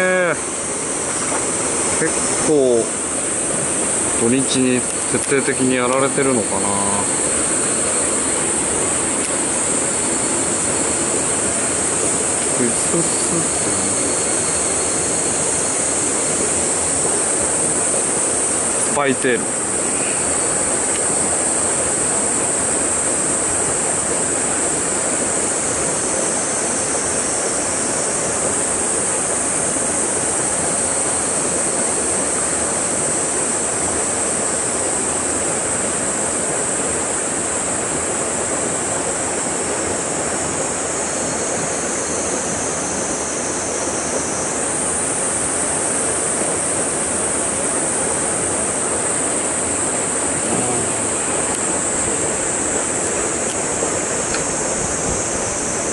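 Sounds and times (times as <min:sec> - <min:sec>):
stream water pouring into pool: 0:00.9 - 0:33.0.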